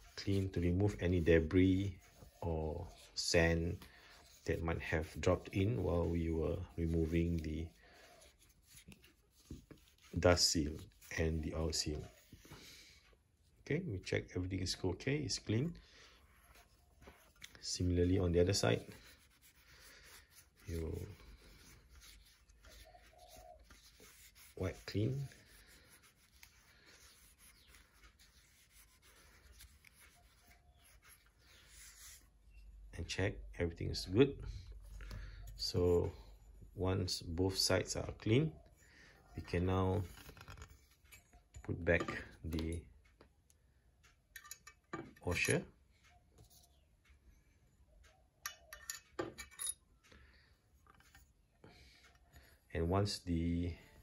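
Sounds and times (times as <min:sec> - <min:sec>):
cloth rubbing and scraping: 0:16.1 - 0:32.6
metal washers clinking: 0:48.5 - 0:49.8.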